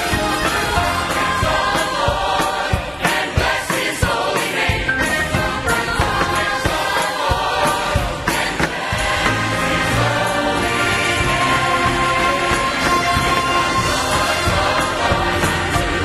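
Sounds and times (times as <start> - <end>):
choir singing: 0.0 - 16.0
orchestra playing: 9.3 - 16.0.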